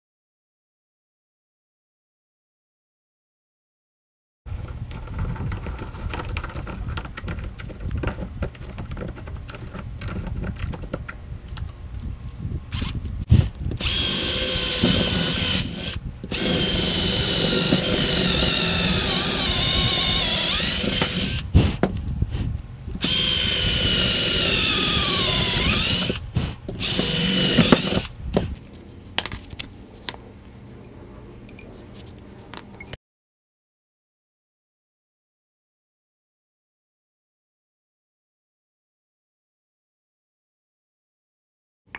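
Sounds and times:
electric drill boring into metal: 0:13.8 - 0:21.5, 0:23.0 - 0:26.2, 0:26.8 - 0:28.1.

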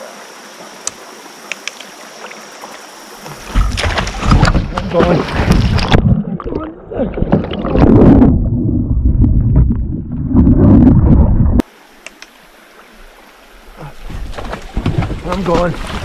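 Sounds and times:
faint river ambience: 0:00.0 - 0:07.8, 0:11.6 - 0:16.0
water splashing and churning: 0:00.0 - 0:11.8, 0:12.4 - 0:16.0
knocks underwater: 0:03.4 - 0:11.6, 0:14.2 - 0:16.0.

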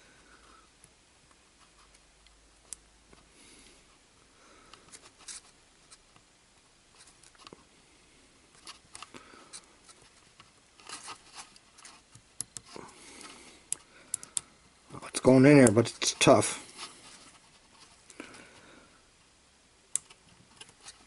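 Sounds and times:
fingers clicking and scraping cable: 0:09.9 - 0:14.5, 0:19.9 - 0:21.0.

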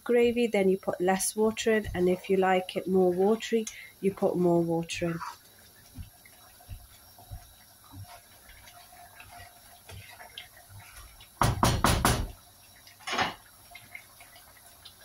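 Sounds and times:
spatula knocking against pan: 0:11.4 - 0:12.4.

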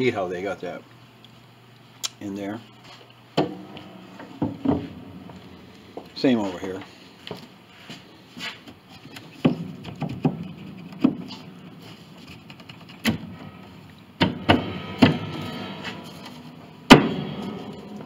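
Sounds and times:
wooden knocks and clunks: 0:04.2 - 0:05.0, 0:09.2 - 0:11.3
wood-on-wood scraping: 0:07.3 - 0:13.1.

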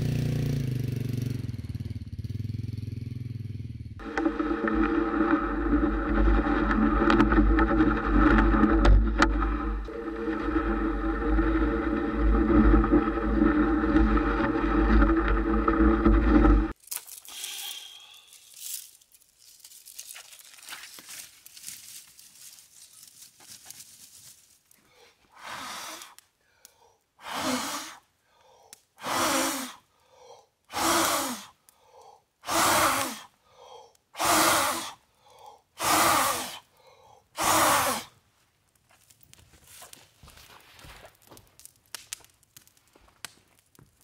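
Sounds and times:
man blowing forceful puffs of breath: 0:24.9 - 0:38.1.

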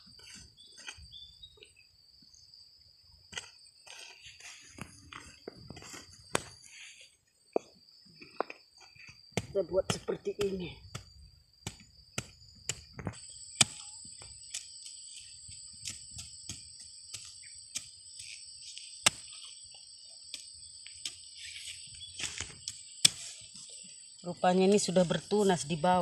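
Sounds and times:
insect chirring: 0:00.0 - 0:26.0
hand hoe chopping soil: 0:03.3 - 0:06.7, 0:08.4 - 0:19.6, 0:20.3 - 0:23.7.

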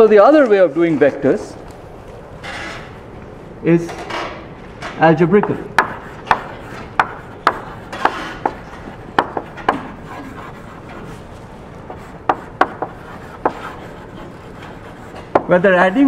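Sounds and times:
chalk tapping and scraping on blackboard: 0:05.4 - 0:16.0.

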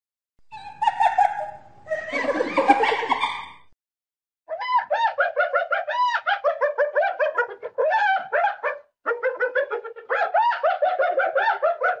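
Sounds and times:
hyena laughing giggle: 0:00.5 - 0:03.6.

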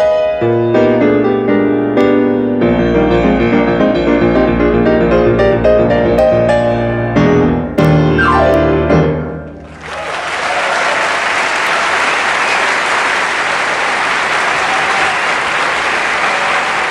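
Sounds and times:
jazz piano: 0:00.0 - 0:09.8
audience applauding: 0:09.5 - 0:16.9.

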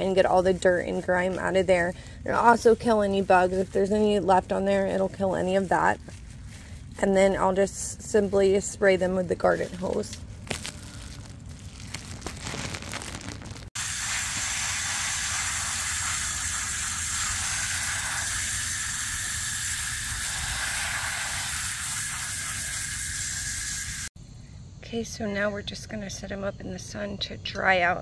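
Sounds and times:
gloved hand rubbing feathers: 0:00.0 - 0:13.7
hose nozzle spraying water: 0:09.4 - 0:24.1.

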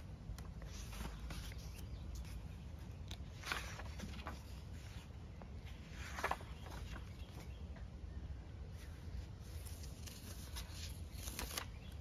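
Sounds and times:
paper pages turning: 0:00.2 - 0:07.9, 0:08.7 - 0:12.0
page flips: 0:00.3 - 0:05.1, 0:05.7 - 0:07.8, 0:09.5 - 0:12.0.

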